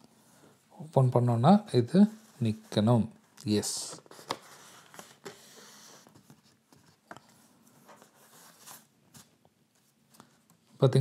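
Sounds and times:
card stock rustling: 0:02.4 - 0:10.5.

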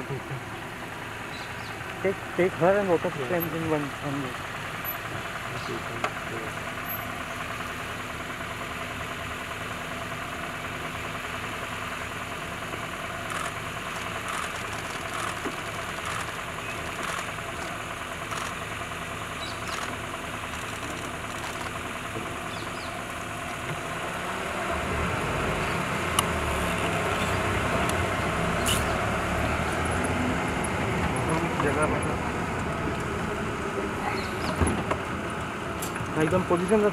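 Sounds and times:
vehicle engine idling and revving: 0:00.0 - 0:36.9.

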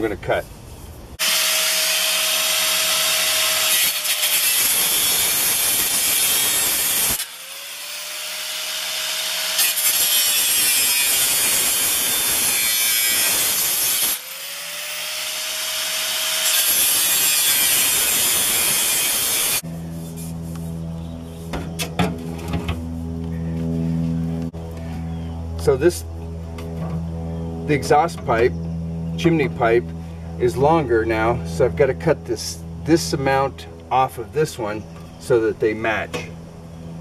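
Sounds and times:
angle grinder cutting metal: 0:01.2 - 0:20.2.

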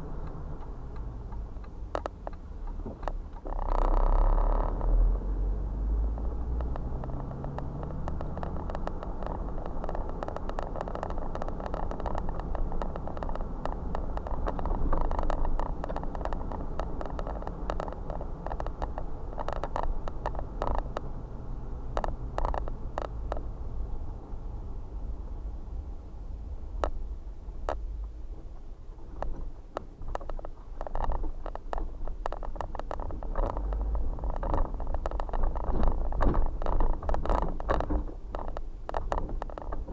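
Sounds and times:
car engine and tyre rumble: 0:00.0 - 0:39.9
clicks and crackles under wheels: 0:00.0 - 0:39.9
car rolling over railroad tracks: 0:05.6 - 0:24.0, 0:26.8 - 0:39.9.

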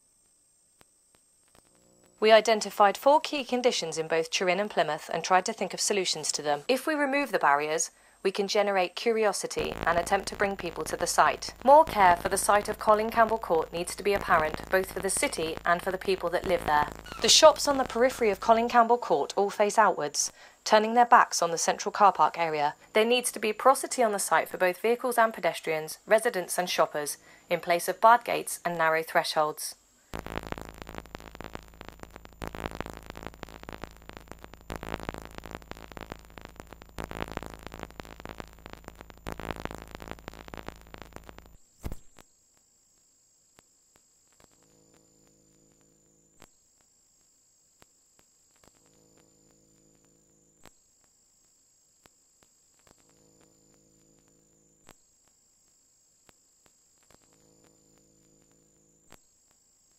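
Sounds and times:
faint high steady tone: 0:01.6 - 0:29.6.

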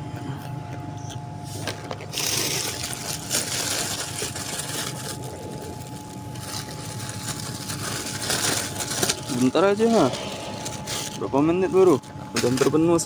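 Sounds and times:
steady low hum: 0:00.0 - 0:13.0
plastic bag crinkling: 0:01.6 - 0:13.0.

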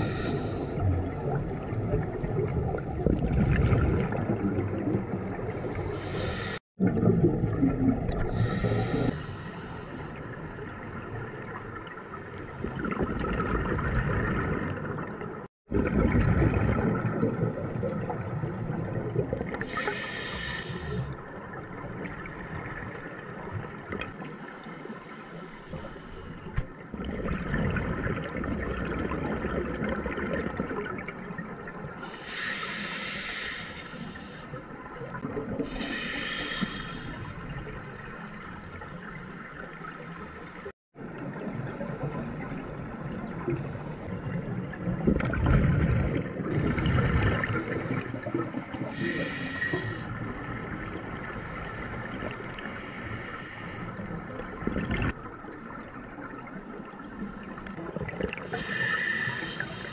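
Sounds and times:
underwater exhaled bubbles gurgling: 0:00.0 - 0:59.9
regulator inhalation hiss: 0:06.0 - 0:06.6, 0:19.7 - 0:21.0, 0:32.1 - 0:34.4, 0:35.8 - 0:37.2, 0:48.8 - 0:50.0, 0:52.6 - 0:54.0, 0:58.5 - 0:59.9.

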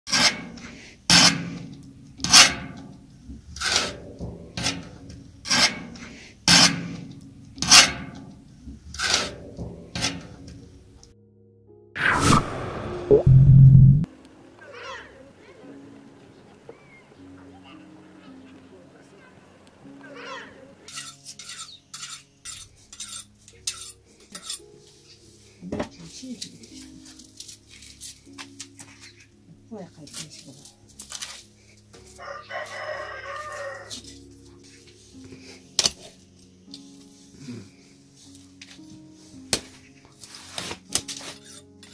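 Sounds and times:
metal spatula scraping metal pot: 0:00.1 - 0:02.8, 0:03.6 - 0:08.2, 0:08.9 - 0:10.4, 0:20.9 - 0:24.7, 0:40.6 - 0:41.9
knife scraping and cutting: 0:20.9 - 0:24.7, 0:40.2 - 0:41.9.

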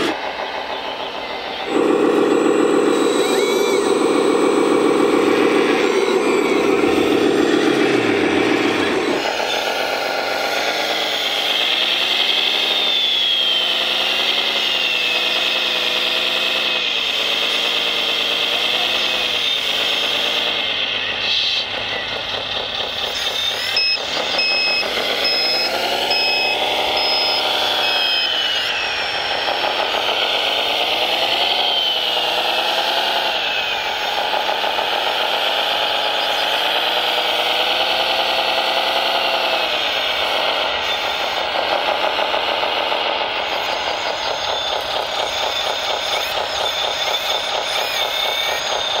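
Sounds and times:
model wheel loader engine: 0:00.0 - 0:49.0
reversing beeper short beeps: 0:23.0 - 0:30.1.

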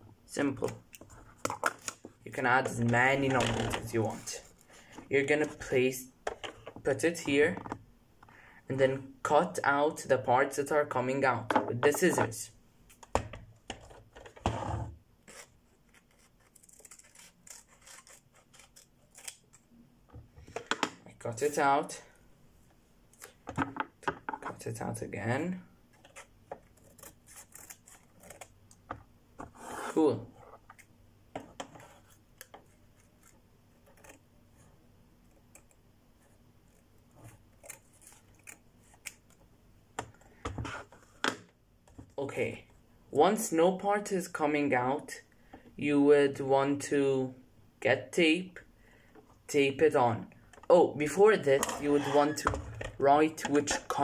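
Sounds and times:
scissors snipping paper: 0:15.3 - 0:19.7, 0:26.6 - 0:28.5, 0:36.7 - 0:39.3.

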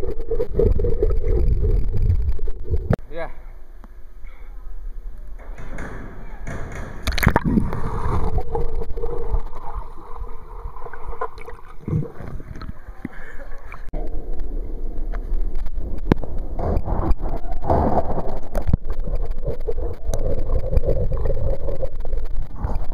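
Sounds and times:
underwater gurgling water: 0:00.0 - 0:03.0, 0:07.0 - 0:22.9
sharp knocks: 0:05.4 - 0:07.4.

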